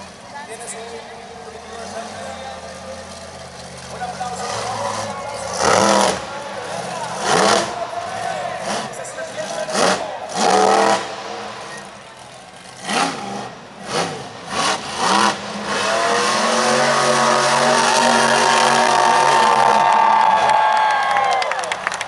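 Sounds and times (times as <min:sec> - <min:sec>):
monster truck engine revving: 0:00.0 - 0:22.0.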